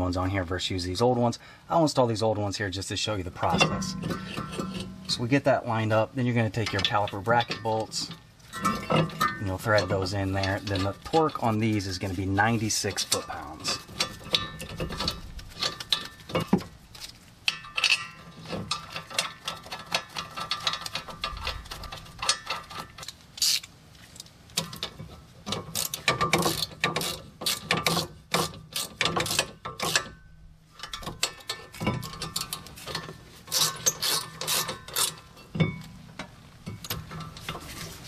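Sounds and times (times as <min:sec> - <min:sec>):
hand ratchet clicking: 0:18.7 - 0:23.7, 0:24.6 - 0:30.1, 0:30.8 - 0:35.3.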